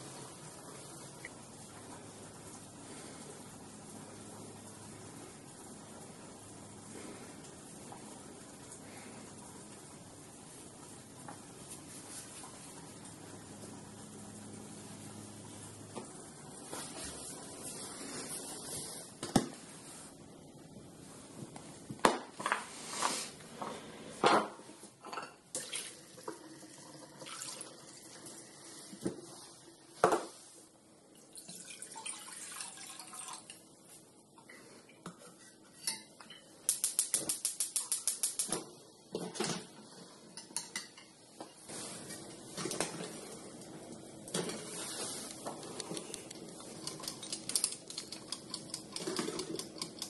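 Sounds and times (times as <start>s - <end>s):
water running: 0.0s - 20.1s, 25.1s - 35.1s
dishes and pots clinking: 24.2s - 25.4s, 34.4s - 38.5s, 40.3s - 41.6s, 46.6s - 50.0s.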